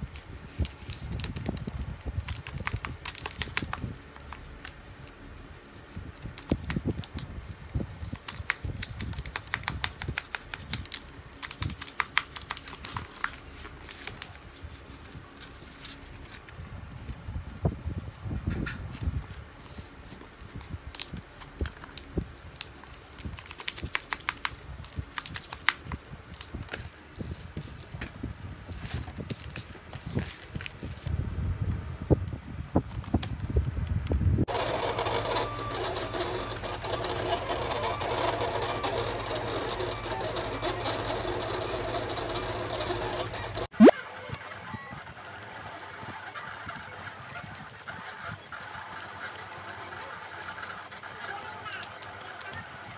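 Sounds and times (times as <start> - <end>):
plastic sheet crinkling: 0.5 - 7.3
cutting machine whirring: 34.5 - 43.9.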